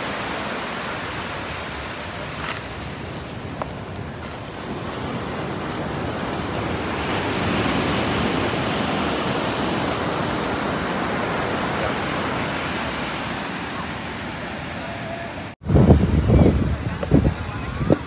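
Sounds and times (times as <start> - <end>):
surf washing onto beach: 0.0 - 18.0
wind on microphone: 15.6 - 18.0.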